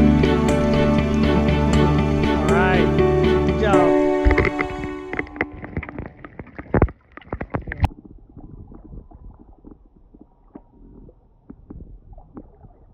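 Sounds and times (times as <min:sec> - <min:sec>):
muffled underwater rumble: 0:00.0 - 0:12.9
sharp knocks and clicks: 0:04.2 - 0:09.8.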